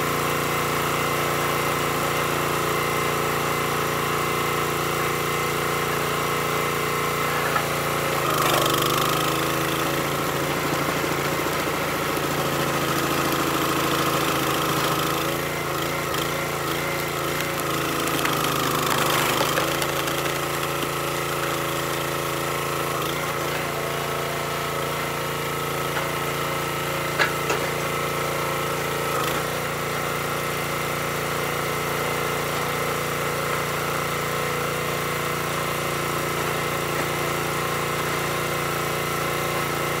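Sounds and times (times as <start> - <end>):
small gasoline engine running: 0.0 - 40.0
wood cracking: 16.0 - 21.5.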